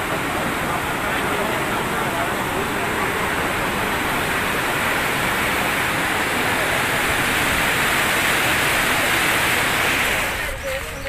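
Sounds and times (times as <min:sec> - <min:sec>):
floodwater rushing over rocks: 0:00.0 - 0:11.0.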